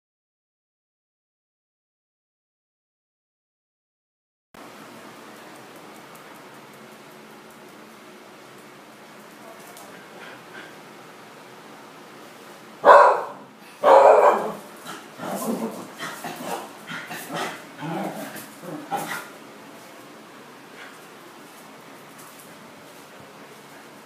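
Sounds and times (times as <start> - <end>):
dog barking: 12.8 - 14.7.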